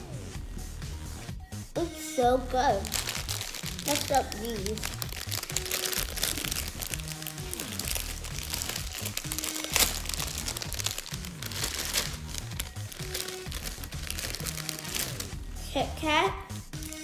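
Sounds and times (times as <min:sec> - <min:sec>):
background music: 0:00.0 - 0:17.0
plastic bag crinkling: 0:02.7 - 0:15.4.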